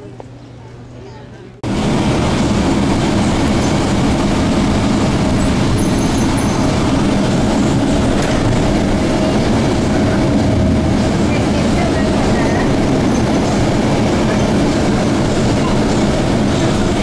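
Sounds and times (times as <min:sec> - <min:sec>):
bus engine and road rumble: 0:01.5 - 0:17.0.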